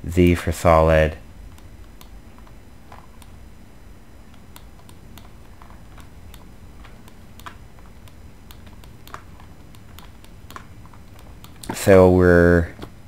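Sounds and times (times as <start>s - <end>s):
faint low hum: 0.0s - 13.0s
keyboard and mouse clicks: 4.3s - 11.8s.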